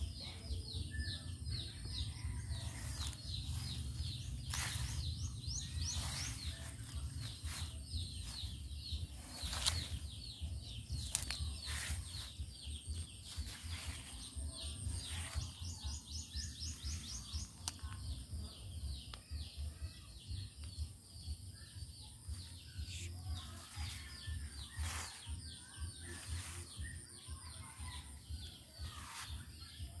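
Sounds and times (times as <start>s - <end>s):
low microphone rumble: 0.0s - 19.0s
birds chirping: 0.0s - 30.0s.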